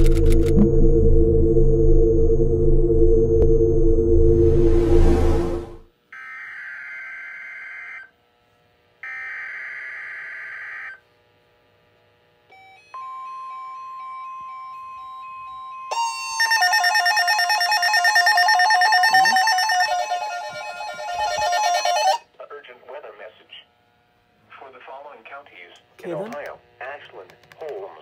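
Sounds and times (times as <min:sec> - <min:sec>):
steady warning tone: 0:00.0 - 0:06.5, 0:15.9 - 0:22.2
warbling alarm beeps: 0:00.0 - 0:08.0, 0:15.9 - 0:22.2
buzzy data bursts: 0:15.9 - 0:22.2.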